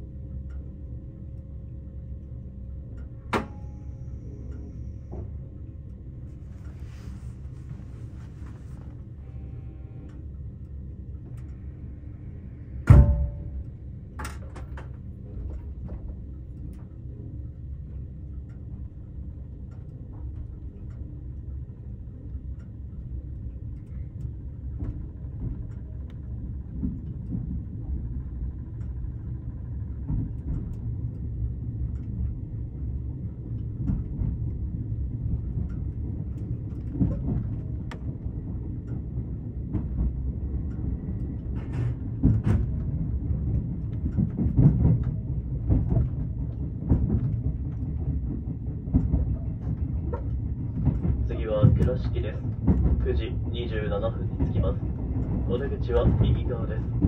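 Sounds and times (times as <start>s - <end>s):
train running rumble: 0.0s - 57.0s
loud clunk with ringing: 3.3s - 4.1s, 12.8s - 13.6s.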